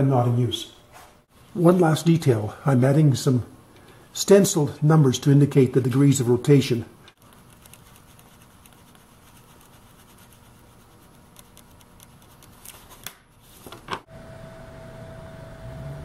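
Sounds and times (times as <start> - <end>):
pen scratching on paper: 7.3 - 12.7
steady hum with tone: 14.0 - 16.0.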